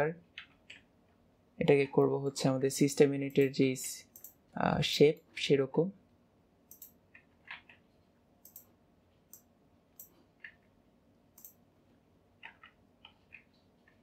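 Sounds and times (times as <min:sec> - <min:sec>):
mouse and keyboard clicks: 0:06.7 - 0:07.8, 0:08.4 - 0:08.7, 0:11.4 - 0:11.6, 0:12.4 - 0:14.0.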